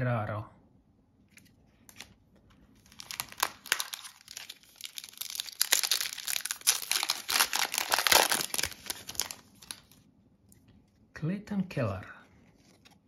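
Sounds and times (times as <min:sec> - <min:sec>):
foil wrapper crinkling: 0:02.8 - 0:10.0.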